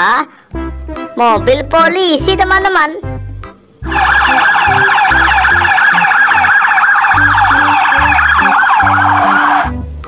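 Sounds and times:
low music notes: 0:00.6 - 0:10.0
electronic siren yelping: 0:03.9 - 0:09.8.

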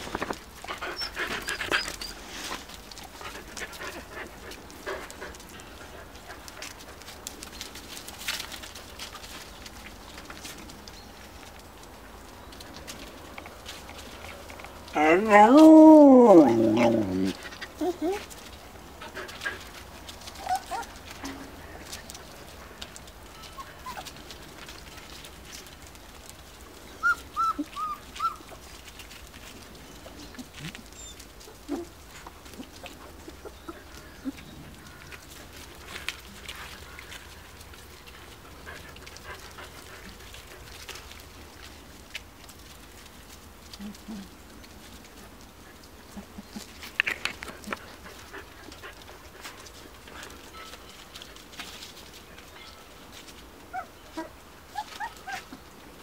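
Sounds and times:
paws scuffling in dry leaves: 0:00.0 - 0:56.0
puppies squeaking: 0:00.8 - 0:02.3, 0:23.4 - 0:24.1, 0:27.0 - 0:28.5, 0:53.7 - 0:55.6
puppy yelps: 0:20.4 - 0:21.0, 0:23.4 - 0:24.1, 0:27.0 - 0:28.5, 0:53.7 - 0:55.6
puppy squeaks: 0:27.0 - 0:28.4.

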